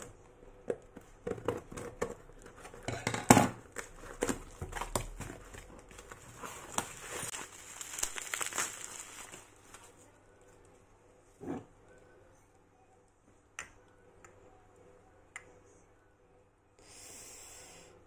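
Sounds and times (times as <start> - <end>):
crinkling and rustling: 1.0 - 10.1.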